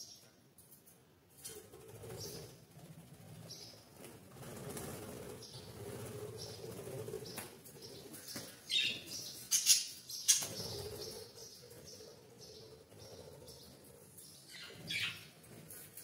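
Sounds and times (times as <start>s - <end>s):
wing flaps: 1.5s - 7.6s.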